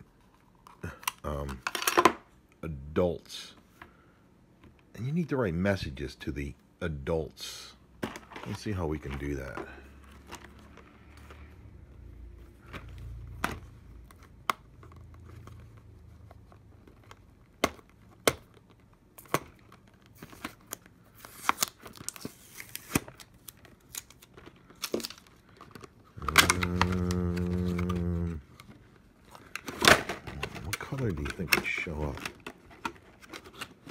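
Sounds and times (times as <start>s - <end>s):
shrink wrap crinkling and tearing: 13.9s - 33.9s.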